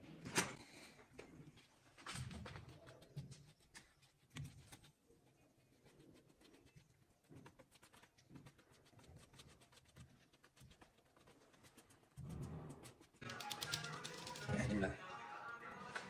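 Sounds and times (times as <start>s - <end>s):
paintbrush stroking on wood: 2.7s - 13.2s.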